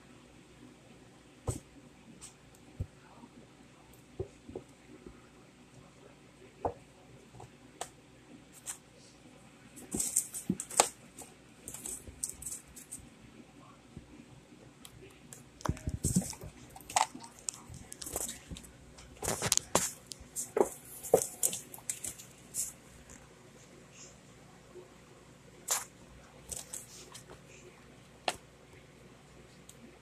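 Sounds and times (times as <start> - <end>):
kittens scratching cardboard box: 9.8 - 13.0, 15.7 - 22.8.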